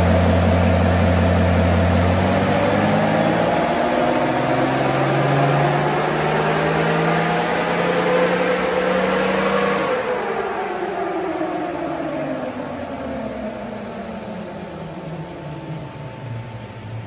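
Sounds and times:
diesel engine revving under load: 0.0 - 13.4.

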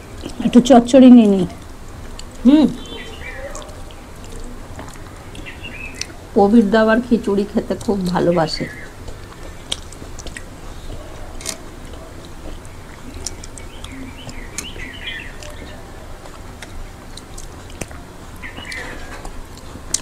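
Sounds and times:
wet chewing and lip smacks: 0.0 - 0.6, 1.3 - 6.4, 7.2 - 20.0
faint bird chirps: 2.7 - 4.5.

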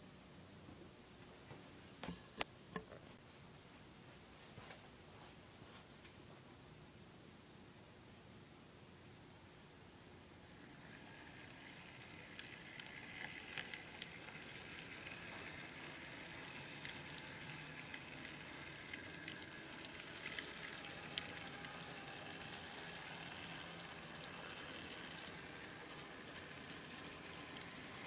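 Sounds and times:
model train running on track: 10.4 - 28.0.

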